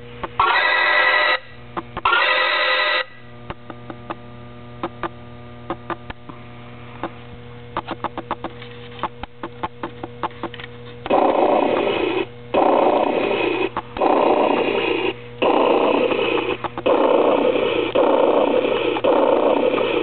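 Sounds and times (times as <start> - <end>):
low electronic hum: 0.0 - 20.0
loud electronic tones: 0.2 - 3.3, 11.1 - 20.0.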